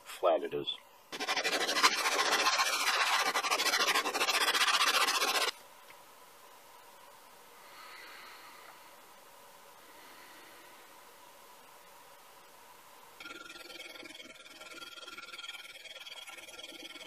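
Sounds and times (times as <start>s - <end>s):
metal scraping on abrasive paper: 1.1s - 5.6s, 13.2s - 17.0s.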